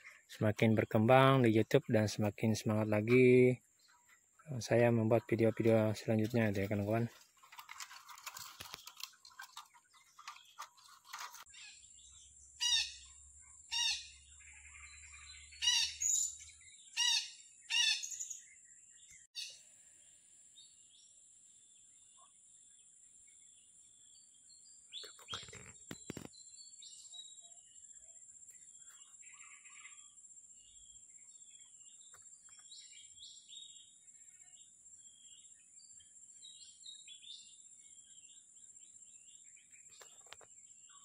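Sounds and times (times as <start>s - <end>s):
brief rustle: 5.6s - 11.5s, 25.0s - 26.4s.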